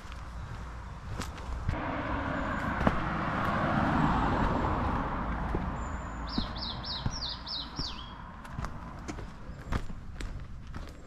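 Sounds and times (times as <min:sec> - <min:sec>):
rushing noise: 0:01.7 - 0:07.2
songbird calling falling notes: 0:05.6 - 0:08.3.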